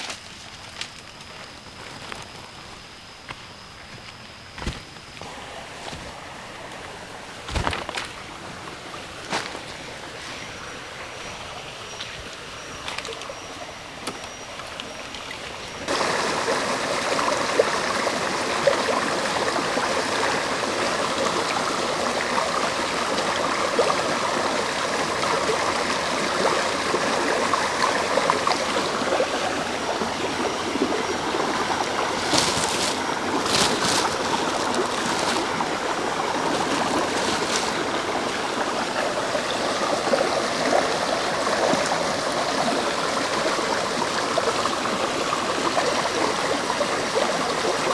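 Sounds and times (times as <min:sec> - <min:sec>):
stream babbling over rocks: 0:04.0 - 0:47.9
greens rinsed in water: 0:25.2 - 0:40.9.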